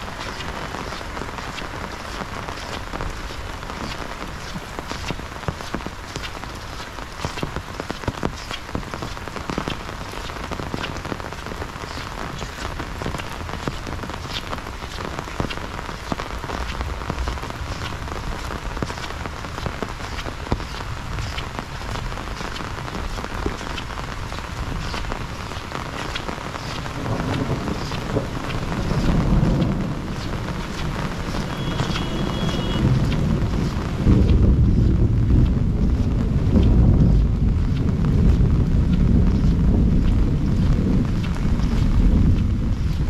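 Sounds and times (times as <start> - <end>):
close raindrop hits: 0.0 - 43.0
heavy rain: 0.0 - 43.0
low rumble: 27.4 - 43.0.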